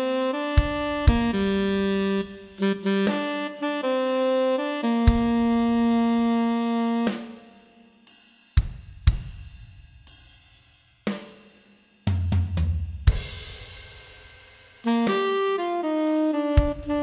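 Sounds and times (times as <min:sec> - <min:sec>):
drum kit backing track: 0:00.0 - 0:17.0
cymbal crashes: 0:13.0 - 0:14.9
low rolling drum fill: 0:14.8 - 0:17.0.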